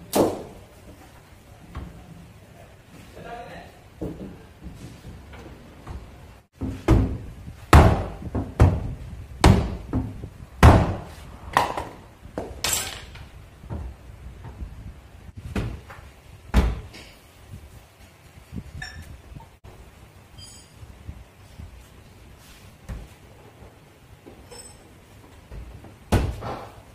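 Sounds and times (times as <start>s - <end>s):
high-pitched squeak: 20.4s - 20.8s.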